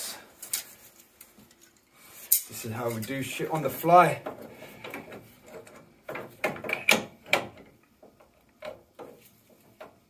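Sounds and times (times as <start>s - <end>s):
pipe grips clicking on pipework: 2.3s - 10.0s.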